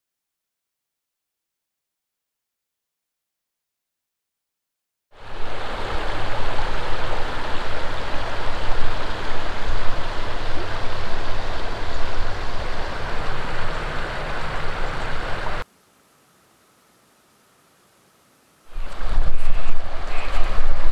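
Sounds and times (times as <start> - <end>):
creek water rushing over rocks: 5.2 - 15.7, 18.6 - 20.9.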